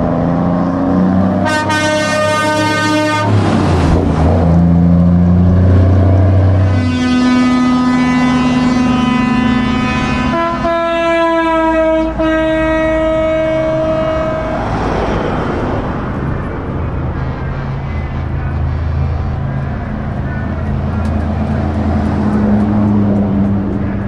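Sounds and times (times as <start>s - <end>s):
passing traffic rushing: 0.0s - 24.0s
vehicle air horns blowing: 1.4s - 3.4s, 6.6s - 14.6s.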